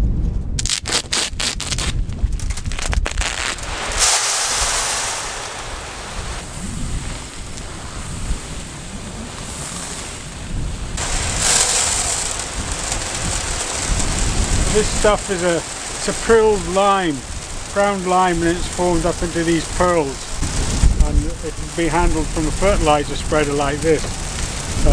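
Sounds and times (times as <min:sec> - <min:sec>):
knife cutting woven bag: 0:00.6 - 0:03.6
pellets pouring into plastic hopper: 0:03.2 - 0:06.3, 0:11.0 - 0:20.2.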